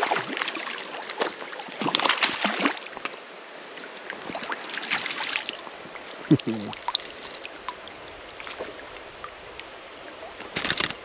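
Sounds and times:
fish splashing in water: 0:00.0 - 0:03.0.

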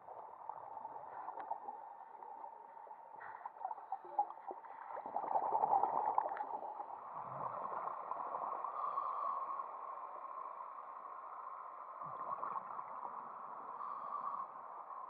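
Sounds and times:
bubbles gurgling underwater: 0:03.6 - 0:06.9.

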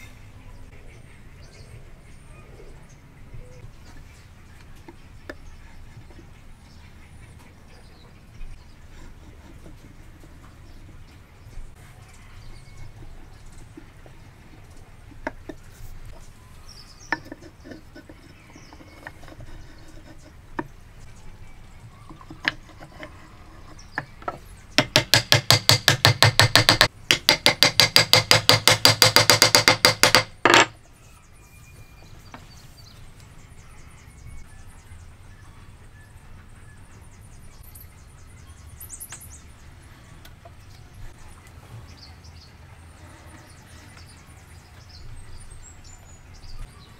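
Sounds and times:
wooden knocks: 0:15.1 - 0:15.6, 0:23.9 - 0:30.8
rapid strikes on wooden wedge: 0:22.1 - 0:23.2, 0:23.9 - 0:30.7.

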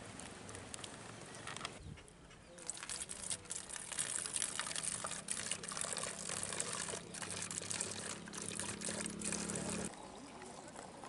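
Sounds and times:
liquid pouring into plastic bottle: 0:02.6 - 0:09.9.

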